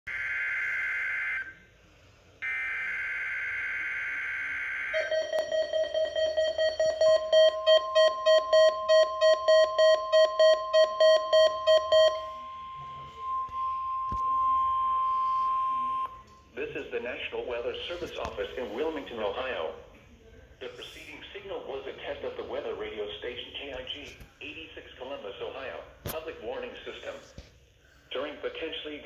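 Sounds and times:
steady warning alarm tone: 0.1 - 1.7, 2.4 - 16.3
rapid alert beeping: 4.9 - 16.2.

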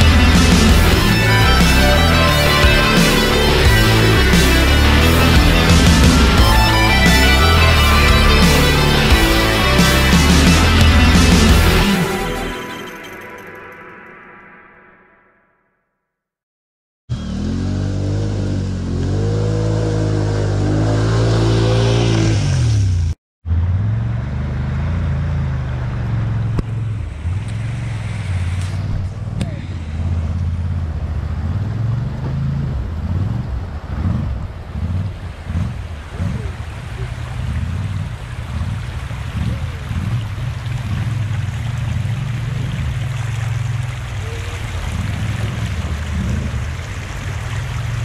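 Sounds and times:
utv engine running steadily: 0.0 - 12.0, 23.6 - 48.0
atv engine revving: 0.0 - 12.4, 17.1 - 48.0
river rapids rushing: 33.8 - 48.0.

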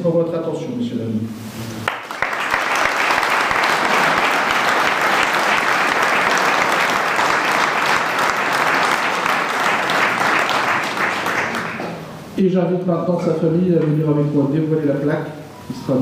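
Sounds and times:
crowd applauding: 1.9 - 12.0.

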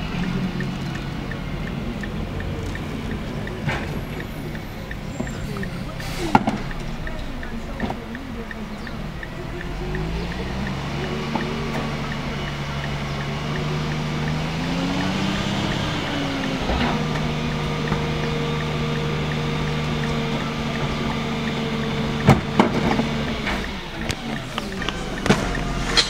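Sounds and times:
garbage truck engine revving: 0.0 - 26.0
trash cart banging: 16.4 - 26.0.

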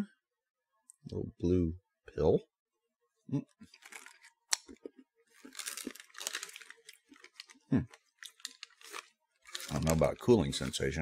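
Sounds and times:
plastic candy bag crinkling: 3.7 - 11.0.

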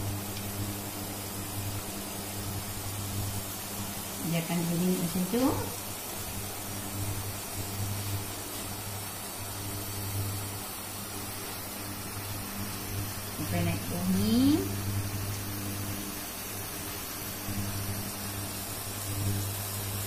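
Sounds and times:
food sizzling in frying pan: 0.0 - 20.0
low electrical hum: 0.0 - 20.0.

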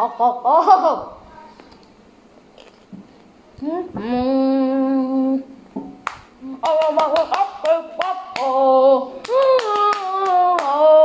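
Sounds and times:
hands clapping: 6.0 - 8.6, 9.2 - 11.0.

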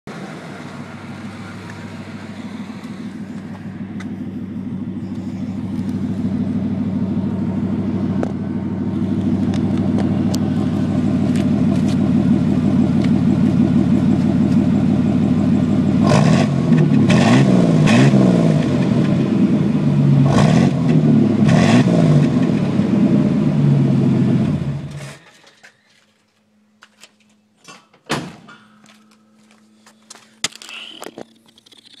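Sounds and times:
car engine idling and revving: 0.1 - 27.4, 28.8 - 32.0
engine knocks and clicks: 2.8 - 19.6.

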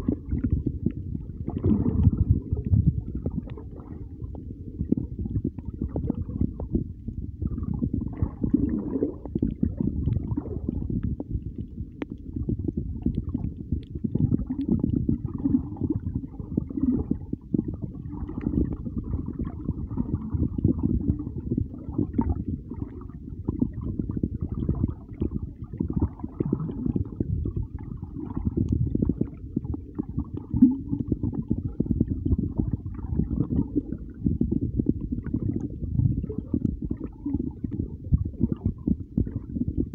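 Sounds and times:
underwater rumble of moving water: 0.0 - 39.9
water gurgling: 0.0 - 39.9.

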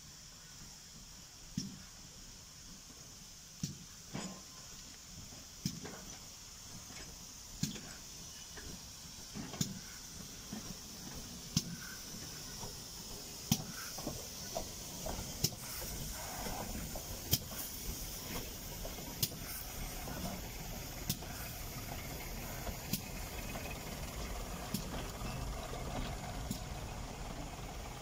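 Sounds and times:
steam engine exhaust beats: 0.0 - 28.0
steam hiss: 0.0 - 28.0.

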